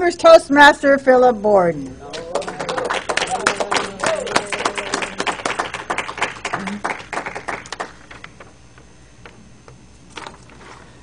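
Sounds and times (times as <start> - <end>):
audience applauding: 2.1 - 8.2.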